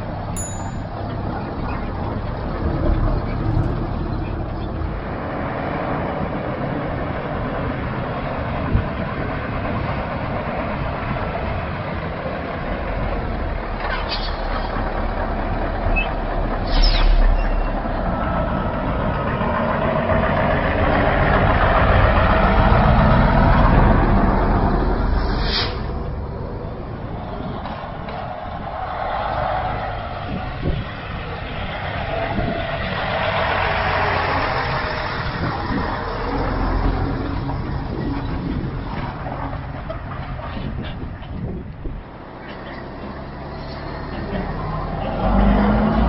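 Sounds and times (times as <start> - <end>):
truck diesel engine: 0.0 - 46.0
air brake hisses: 25.2 - 25.9.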